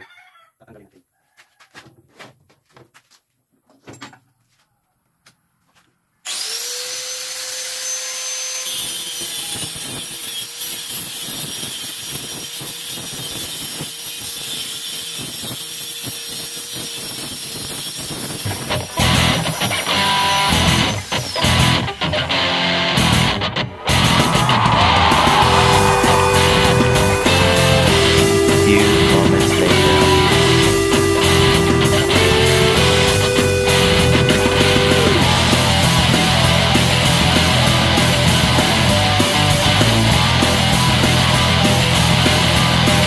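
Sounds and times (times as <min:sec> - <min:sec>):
angle grinder cutting steel wire: 0:06.3 - 0:22.3, 0:23.8 - 0:43.0
guitar music: 0:19.0 - 0:43.0.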